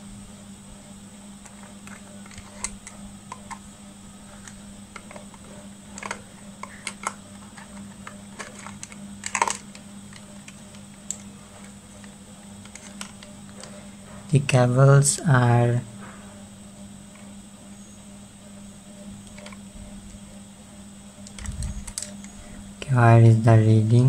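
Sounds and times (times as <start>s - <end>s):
test leads clicking and rattling: 1.4s - 3.7s, 4.3s - 14.4s, 19.1s - 20.2s, 21.2s - 22.6s.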